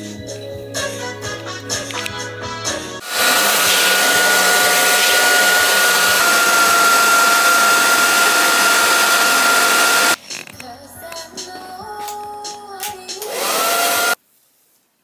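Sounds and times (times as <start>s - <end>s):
hair dryer blowing: 3.0s - 10.2s, 13.2s - 14.2s.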